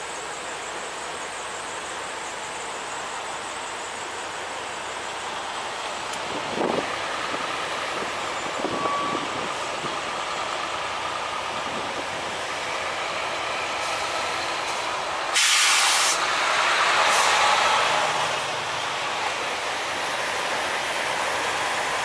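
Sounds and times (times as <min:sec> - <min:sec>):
truck engine running: 0:00.0 - 0:22.0
air brake hiss: 0:15.3 - 0:16.3, 0:17.0 - 0:17.6.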